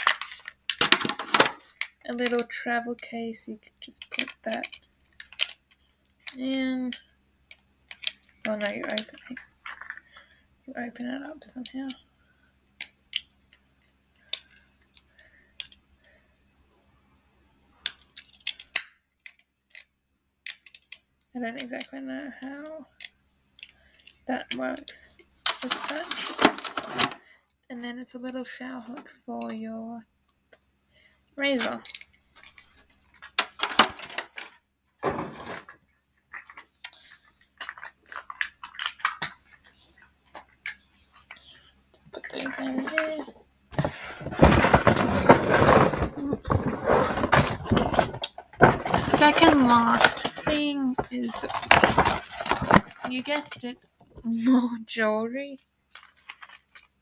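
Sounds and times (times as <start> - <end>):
plastic packaging rustling: 0.0 - 2.4, 25.4 - 27.2, 31.6 - 53.7, 55.9 - 57.0
small plastic items clicking: 0.0 - 2.6, 3.8 - 10.2, 14.2 - 16.2, 17.8 - 21.0, 21.6 - 27.2, 31.4 - 35.7, 36.3 - 41.5.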